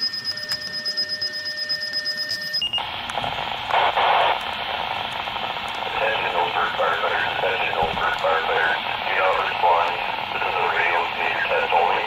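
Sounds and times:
high beep: 0.0s - 2.8s
radio static hiss: 2.8s - 12.0s.

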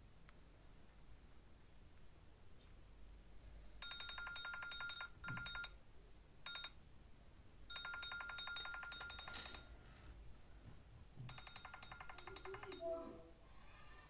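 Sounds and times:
phone ringtone pulsing beep: 3.8s - 5.8s, 6.5s - 6.8s, 7.7s - 9.7s, 11.3s - 12.9s.

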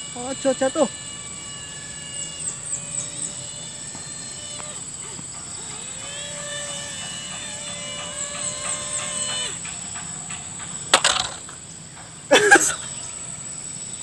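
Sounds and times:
electric motor propeller whine: 0.0s - 14.0s
plane scraping knocks on dirt: 6.5s - 12.1s.

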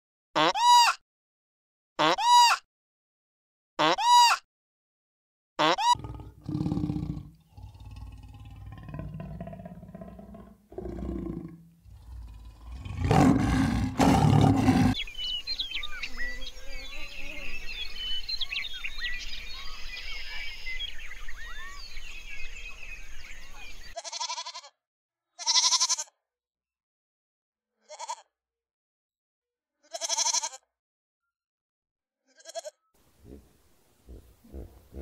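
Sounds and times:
big cat growling and roaring: 6.0s - 15.0s, 34.1s - 35.0s
small birds chirping: 6.0s - 24.0s, 33.2s - 35.0s
goats bleating: 24.0s - 24.7s, 25.4s - 26.0s, 29.9s - 30.6s, 32.4s - 33.4s.

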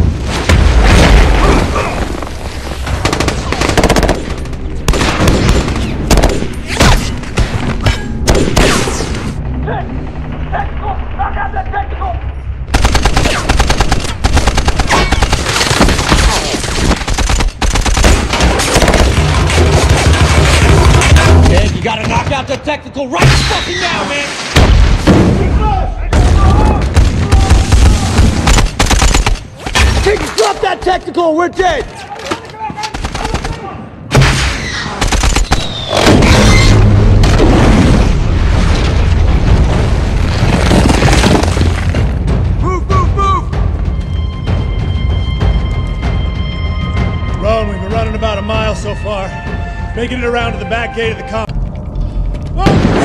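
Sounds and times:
gunshots: 2.8s - 9.4s, 12.7s - 22.2s, 24.5s - 30.2s, 32.9s - 38.2s
automatic gunfire: 12.7s - 20.6s, 27.5s - 29.4s
large explosion: 35.9s - 41.9s.

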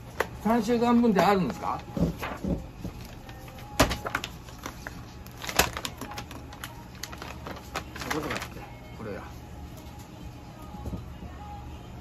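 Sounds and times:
paper being handled: 1.1s - 8.7s.

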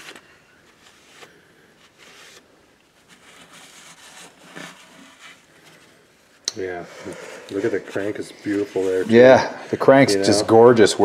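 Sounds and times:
rag rubbing on metal: 7.6s - 9.6s.

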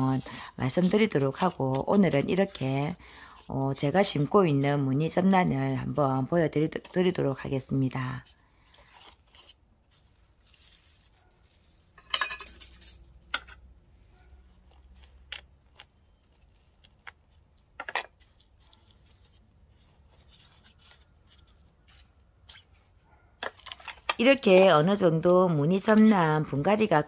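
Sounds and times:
tweezers scratching in potting mix: 0.0s - 11.3s, 14.3s - 22.9s
crackly scraping: 13.6s - 26.6s.

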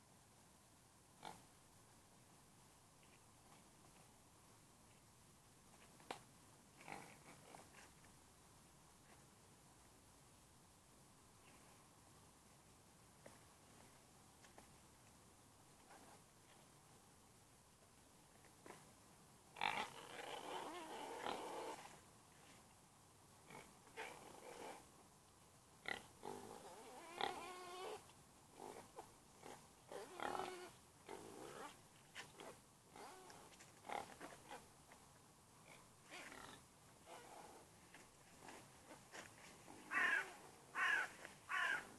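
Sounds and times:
pig grunting: 19.6s - 21.9s, 28.6s - 31.8s.

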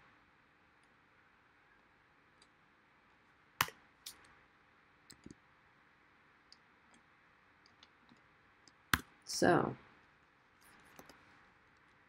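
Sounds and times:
computer mouse clicking: 5.1s - 5.4s.

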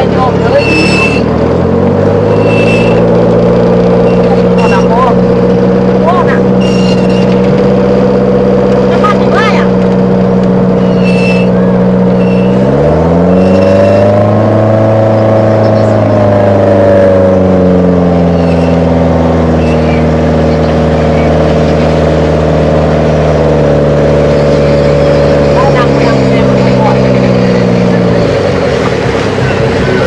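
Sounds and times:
boat engine revving: 0.0s - 30.0s.

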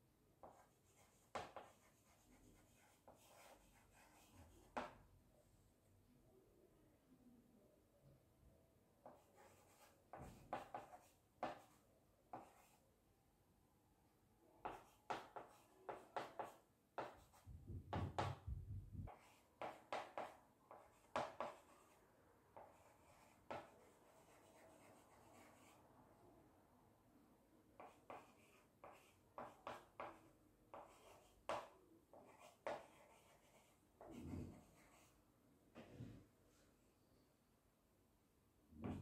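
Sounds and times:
chalk scratching on blackboard: 0.4s - 4.9s, 9.1s - 12.8s, 14.7s - 17.4s, 19.1s - 22.0s, 22.6s - 25.8s, 27.8s - 35.1s
chalk taps: 0.4s - 5.0s, 9.0s - 12.8s, 14.6s - 18.4s, 19.1s - 21.9s, 22.6s - 25.7s, 27.8s - 35.1s.

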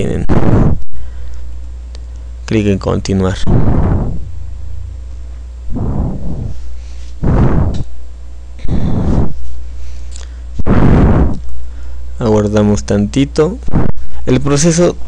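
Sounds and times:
low hum: 0.0s - 15.0s
breath puffs on microphone: 3.4s - 4.3s, 5.7s - 7.9s, 8.6s - 12.1s, 13.7s - 14.3s.

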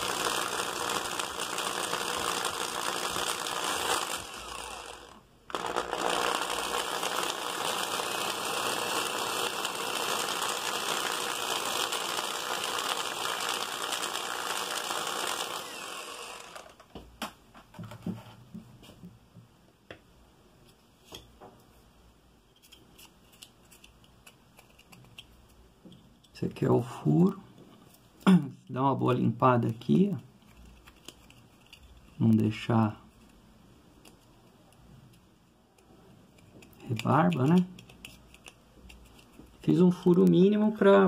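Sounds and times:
electric drill boring plastic: 0.0s - 16.9s.

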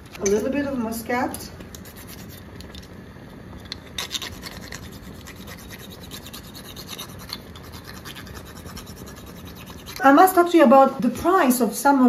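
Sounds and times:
nutmeg grated on a rasp: 1.8s - 2.5s, 3.8s - 10.4s.

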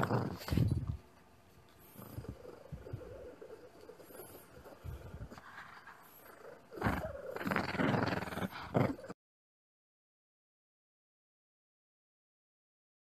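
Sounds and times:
dog growling in play: 0.0s - 1.0s, 1.8s - 9.2s.

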